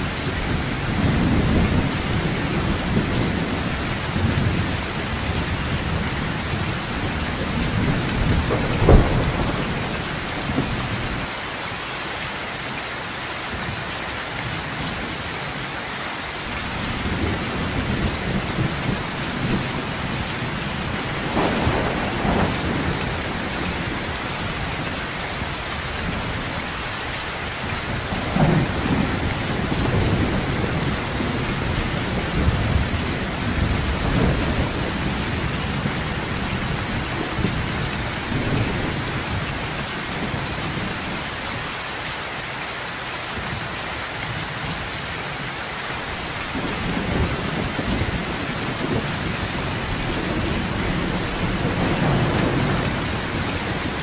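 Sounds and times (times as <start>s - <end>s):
rolling thunder: 0.0s - 11.2s, 16.8s - 26.8s, 27.8s - 41.1s, 46.2s - 54.0s
heavy rain: 0.0s - 54.0s
sharp thunderclap: 7.6s - 11.0s, 17.1s - 24.4s, 27.9s - 36.0s, 46.5s - 54.0s.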